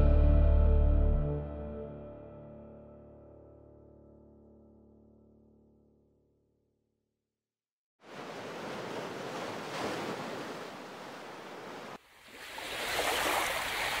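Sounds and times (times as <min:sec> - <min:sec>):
sea surf washing onto beach: 0:08.0 - 0:14.0.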